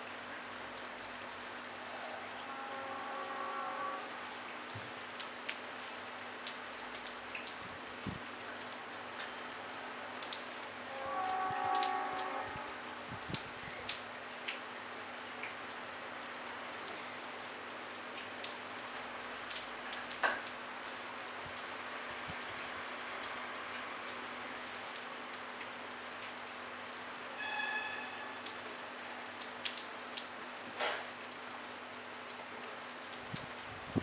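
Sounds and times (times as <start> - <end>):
light rain falling: 0.0 - 34.0
raindrops ticking: 3.2 - 34.0
loud drip: 27.4 - 28.4.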